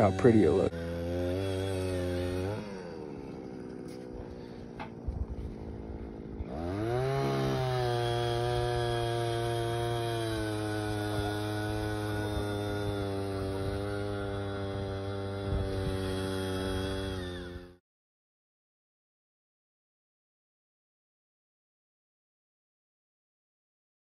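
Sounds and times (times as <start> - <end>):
small engine revving and idling: 0.0 - 17.8.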